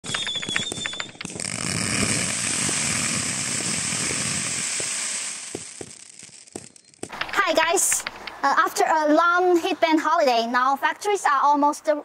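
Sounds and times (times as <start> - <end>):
firework pops: 0.0 - 8.4
firework cake crackling: 0.0 - 9.6.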